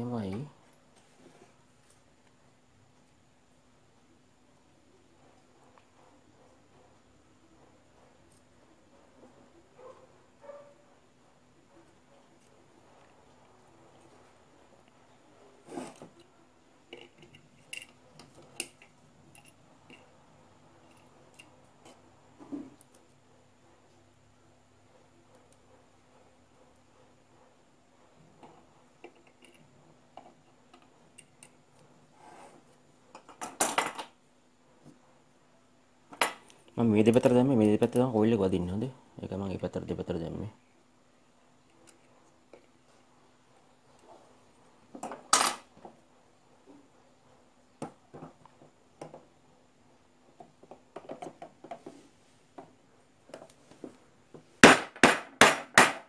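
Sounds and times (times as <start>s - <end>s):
metal parts clicking: 16.9s - 20.1s.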